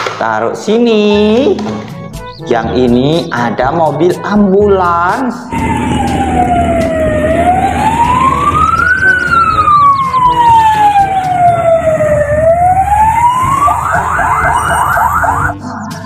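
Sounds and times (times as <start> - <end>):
ambulance siren wailing and yelping: 5.4 - 15.6.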